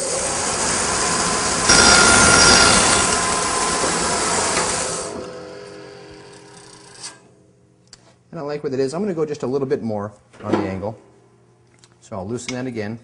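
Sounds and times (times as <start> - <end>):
bandsaw cutting board: 0.0 - 7.2
thin squealing tone: 1.7 - 3.3.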